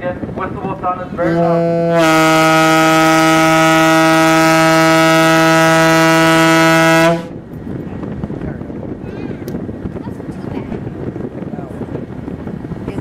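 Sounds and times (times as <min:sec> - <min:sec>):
ferry horn blast: 0:01.2 - 0:07.4.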